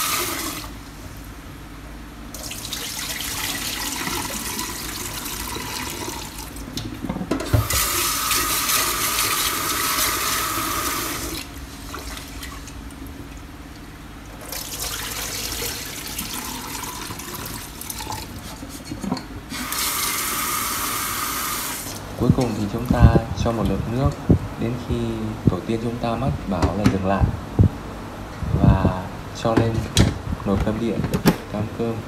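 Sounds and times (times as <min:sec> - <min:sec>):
water splashing into sink: 0:02.4 - 0:06.8, 0:14.4 - 0:18.3.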